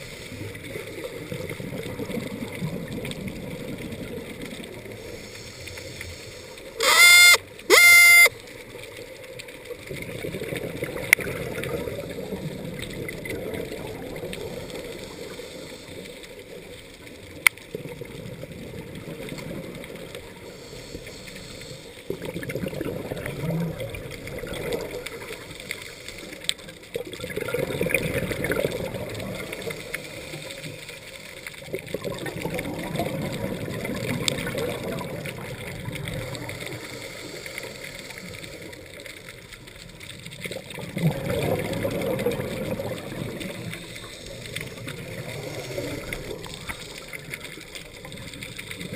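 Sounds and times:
bubbles gurgling underwater: 0.0s - 5.0s, 9.6s - 14.9s, 17.2s - 20.4s, 22.1s - 25.7s, 26.6s - 30.8s, 31.6s - 36.9s, 39.4s - 48.9s.

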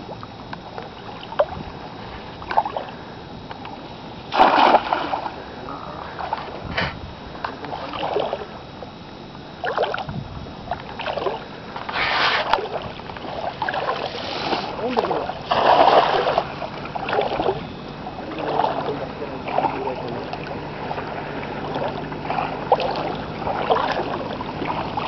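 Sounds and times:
net slapping onto water: 4.3s - 5.3s
water splashing around legs: 4.3s - 5.4s, 10.8s - 17.6s, 18.3s - 25.0s.

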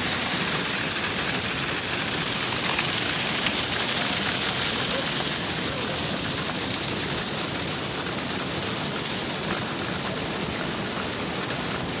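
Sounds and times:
waterfall splashing onto stones: 0.0s - 12.0s.

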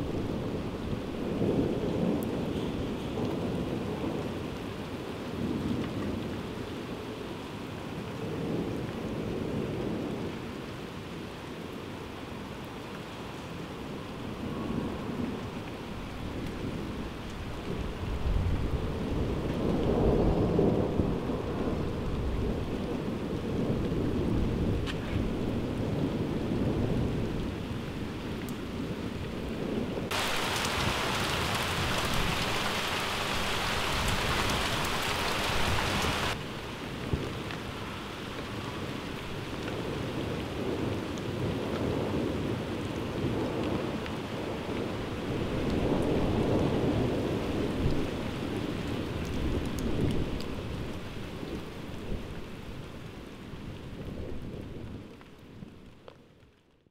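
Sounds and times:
heavy rain: 0.0s - 56.8s
bright rain hiss: 25.6s - 53.9s
thunder rumbling: 29.4s - 36.4s.

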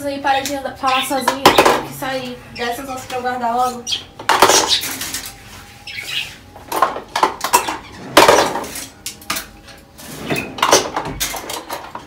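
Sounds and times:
dishes and cutlery clattering: 1.2s - 2.0s, 4.2s - 5.4s, 6.7s - 12.0s.

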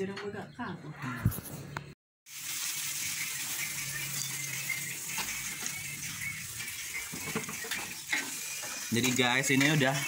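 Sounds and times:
food sizzling in a pan: 2.3s - 10.0s.

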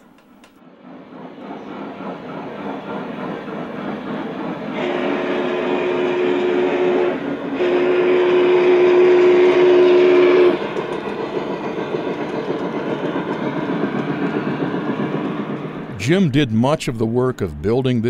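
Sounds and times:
model train rumbling on track: 0.6s - 18.0s
steam whistle blasts: 4.7s - 10.8s.

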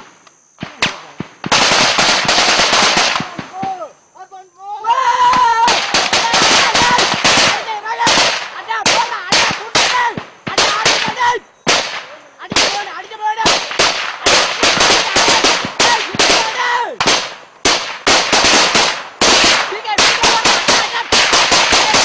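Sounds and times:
gunfire shots and bursts: 0.0s - 3.8s, 5.7s - 22.0s
men shouting: 3.2s - 11.4s, 12.2s - 17.1s, 19.6s - 22.0s.

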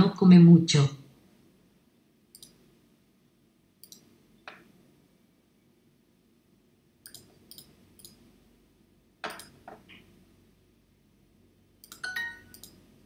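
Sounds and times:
computer mouse clicks: 2.3s - 2.6s, 3.8s - 4.7s, 7.0s - 8.2s, 9.3s - 10.1s, 11.8s - 12.8s.

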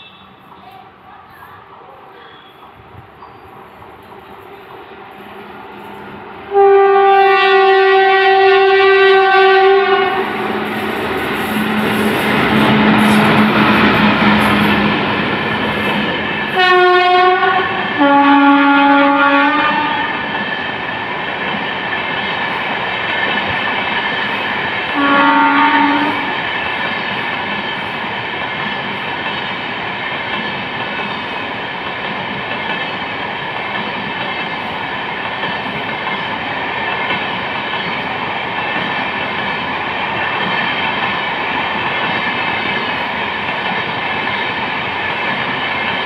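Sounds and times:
locomotive horn blasts: 6.5s - 10.4s, 16.6s - 20.2s, 25.0s - 26.3s
train wheels clattering over rails: 9.1s - 18.0s, 19.7s - 46.0s.

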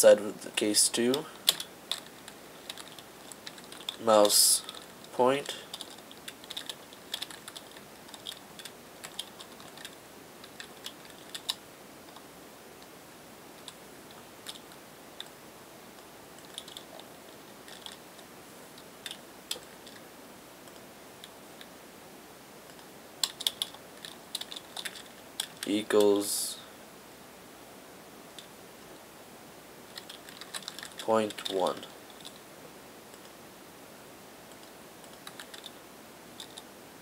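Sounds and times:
computer keyboard typing: 1.1s - 12.2s, 14.4s - 15.3s, 16.4s - 18.0s, 19.0s - 20.0s, 22.7s - 26.1s, 29.9s - 32.4s, 34.5s - 35.8s, 36.4s - 36.6s.

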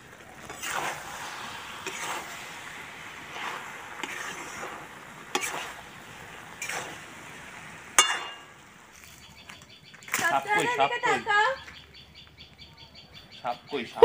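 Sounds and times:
mushrooms sizzling: 0.0s - 11.3s
spatula scraping a pan: 0.4s - 7.2s, 8.0s - 9.2s.

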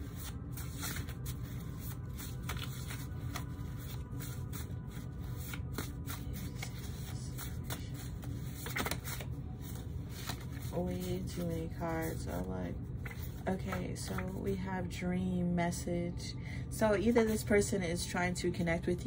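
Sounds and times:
cards being shuffled: 0.0s - 14.4s
steady low hum: 0.0s - 19.0s.

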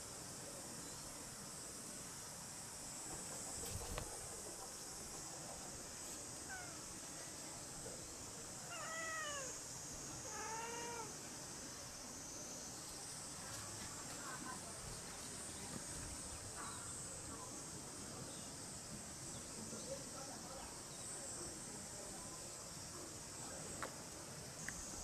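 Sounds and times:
steady high hiss: 0.0s - 25.0s
cats meowing: 8.7s - 9.6s, 10.3s - 11.2s.

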